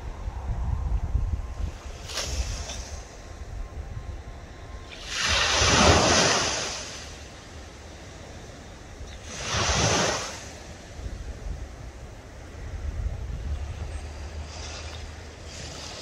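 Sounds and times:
wind rumble on microphone: 0.0s - 16.0s
waves washing on shore: 1.7s - 3.2s, 4.9s - 16.0s.

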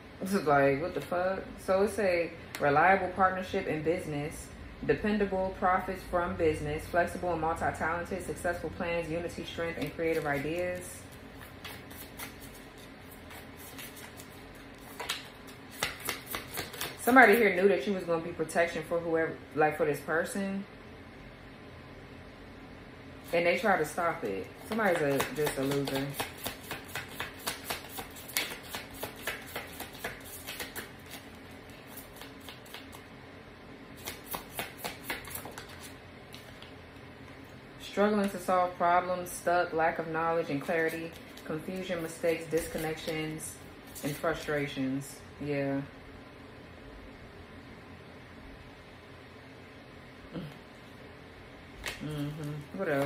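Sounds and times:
cards shuffled by hand: 9.7s - 17.4s, 24.4s - 33.1s, 34.0s - 36.8s, 40.6s - 44.3s.

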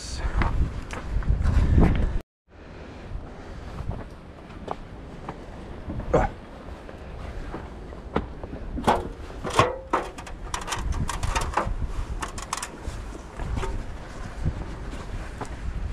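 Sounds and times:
wind rumble on microphone: 0.0s - 15.9s
fishing gear knocking and rattling: 8.8s - 12.8s.

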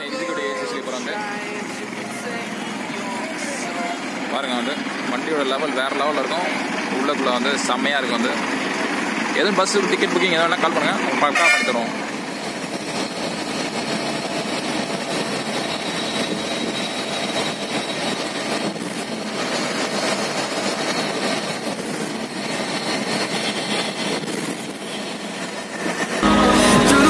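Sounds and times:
bus engine and road noise: 0.0s - 27.0s
music: 26.2s - 27.0s.

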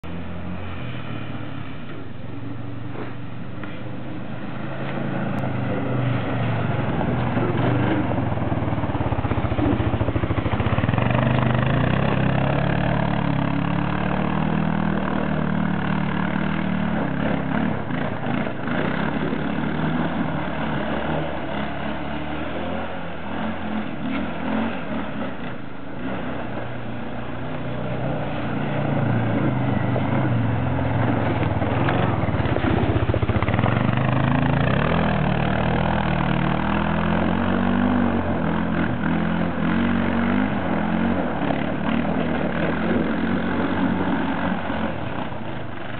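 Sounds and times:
quad engine revving: 2.9s - 45.9s.

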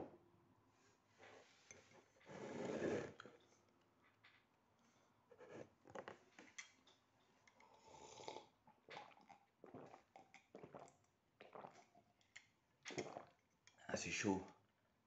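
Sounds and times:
sipping and slurping coffee: 1.7s - 3.5s, 7.4s - 13.8s.

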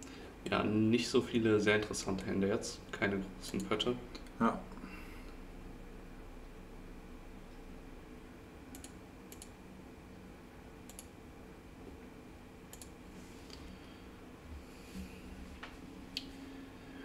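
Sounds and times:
faint room hum: 0.0s - 17.0s
computer mouse clicks: 8.7s - 9.6s, 10.9s - 11.1s, 12.7s - 13.6s.

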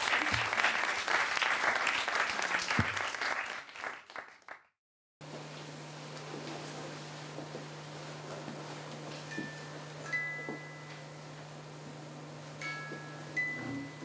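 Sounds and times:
audience applauding: 0.0s - 4.8s.

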